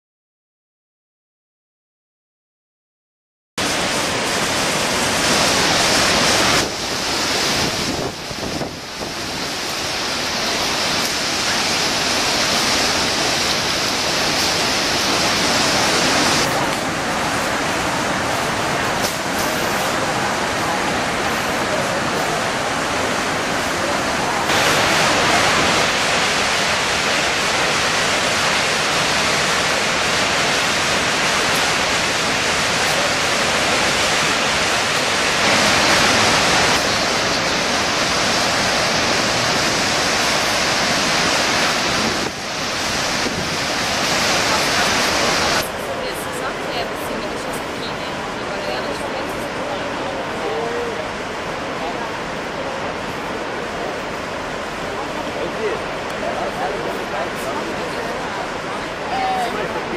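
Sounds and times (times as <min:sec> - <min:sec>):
waterfall rushing: 0:03.6 - 0:59.9.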